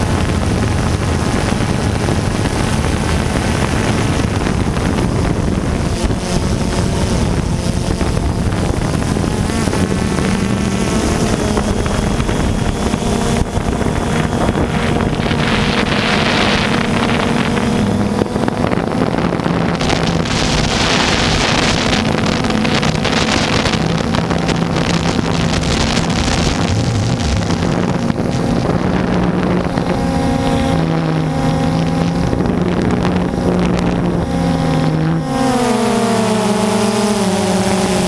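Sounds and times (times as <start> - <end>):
drone propellers buzzing: 0.0 - 38.0
wind buffeting microphone: 0.0 - 38.0.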